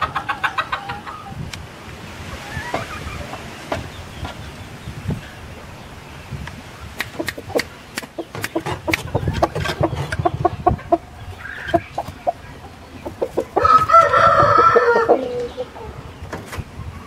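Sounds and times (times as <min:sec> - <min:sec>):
rooster clucking: 0:00.0 - 0:01.4, 0:07.0 - 0:16.0
sharp clicks: 0:07.0 - 0:09.1
rooster long falling call: 0:13.6 - 0:15.5.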